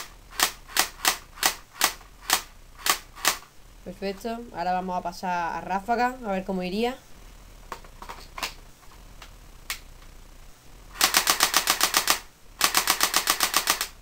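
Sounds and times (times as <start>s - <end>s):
airsoft rifle firing bursts: 0.0s - 3.5s, 11.0s - 14.0s.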